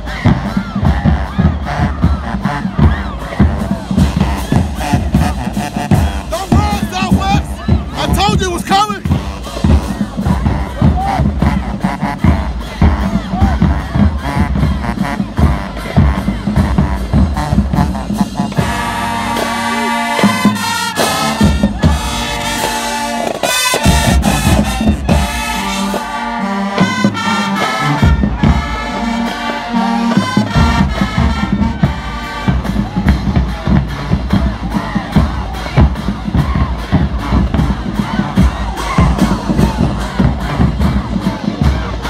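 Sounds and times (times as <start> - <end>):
brass held chords: 0.0 - 42.0
drumline beats: 0.0 - 42.0.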